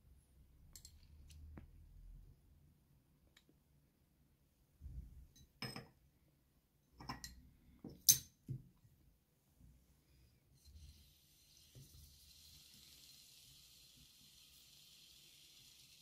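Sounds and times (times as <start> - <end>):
faint sizzle in oiled pan: 10.6 - 16.0.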